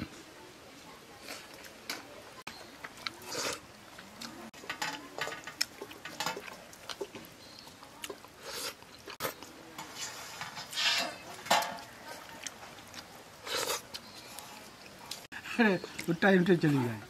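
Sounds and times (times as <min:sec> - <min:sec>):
wet chewing and sucking: 0:02.9 - 0:04.5, 0:05.6 - 0:09.5, 0:12.2 - 0:15.3.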